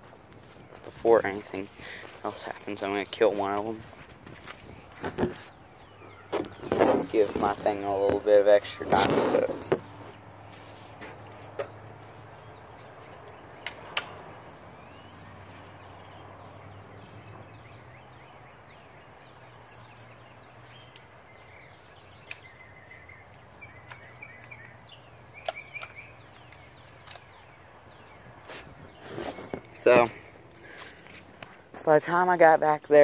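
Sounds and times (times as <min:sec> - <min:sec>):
birds chirping: 0:00.0 - 0:33.0
sharp clicks: 0:13.6 - 0:14.2, 0:22.2 - 0:22.6, 0:23.3 - 0:27.5.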